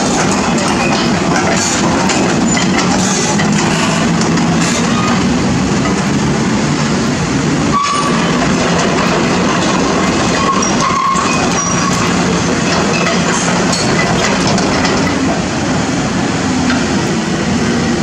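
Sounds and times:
metallic clanks: 0:00.0 - 0:05.2, 0:07.8 - 0:15.4
excavator diesel engine running: 0:00.0 - 0:18.0.

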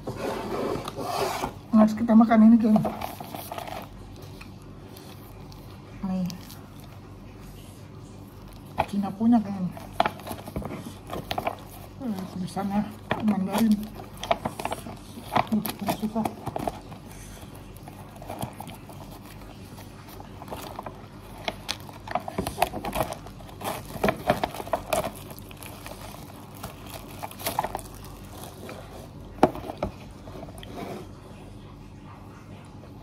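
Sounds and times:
plastic packet crinkling: 0:02.6 - 0:07.1, 0:09.7 - 0:30.6.

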